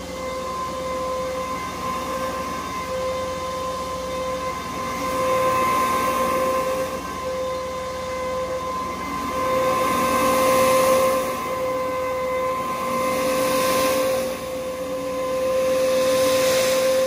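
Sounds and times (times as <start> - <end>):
carpet cleaning machine whining: 0.0 - 17.0
low machine tone: 0.0 - 17.0.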